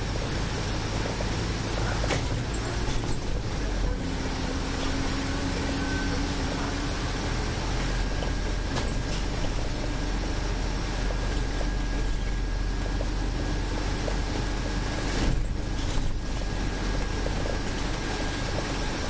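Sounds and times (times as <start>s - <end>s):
bus engine and road noise: 0.0s - 19.0s.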